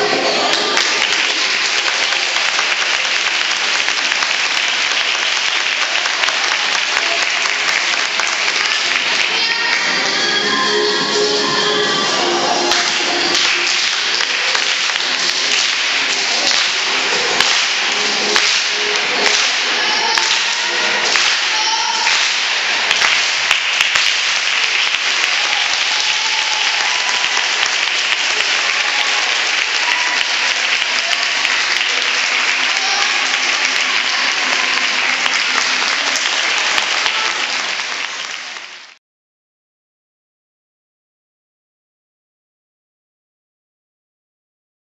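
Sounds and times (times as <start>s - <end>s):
dance music: 0.0s - 38.9s
audience clapping and cheering: 0.0s - 39.0s.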